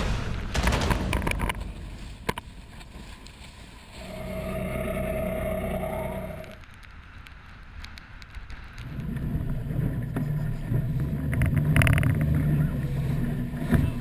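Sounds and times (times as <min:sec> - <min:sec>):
water and wind noise: 0:01.1 - 0:14.0
outboard motor drone: 0:04.0 - 0:06.6, 0:09.0 - 0:14.0.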